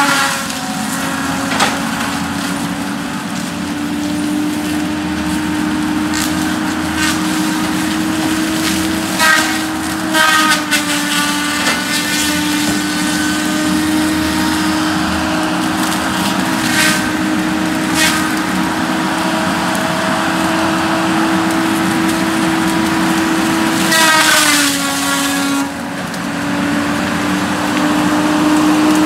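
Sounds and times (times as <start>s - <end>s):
sharp cracks and clanks: 0.0s - 27.1s
heavy machine engine whine: 0.0s - 29.0s.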